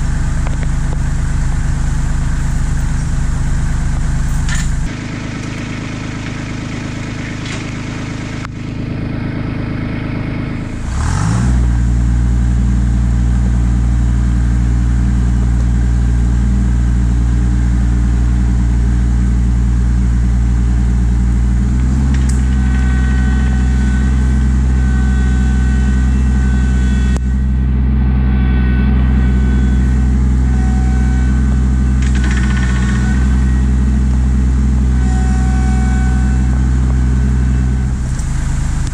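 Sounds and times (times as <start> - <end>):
thin high whine: 0.0 - 9.5, 22.1 - 38.9
tractor diesel engine revving: 0.0 - 38.9.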